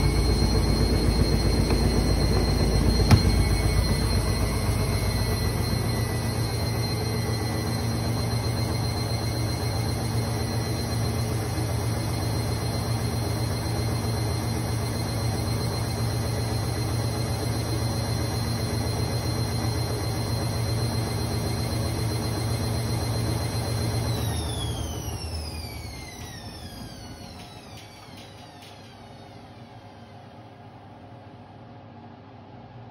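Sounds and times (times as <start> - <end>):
washing machine spinning: 0.0 - 30.7.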